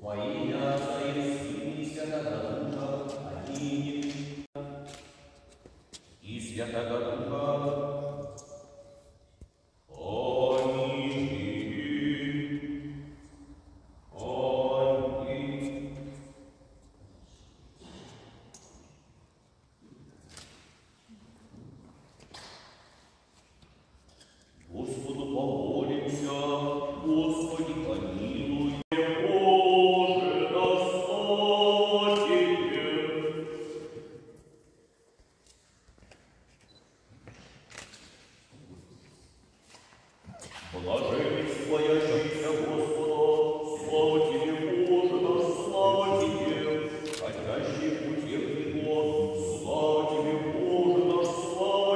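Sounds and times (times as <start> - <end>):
liturgical chanting: 0.0 - 5.6, 6.2 - 9.2, 9.9 - 18.3, 24.6 - 35.0, 39.7 - 51.9.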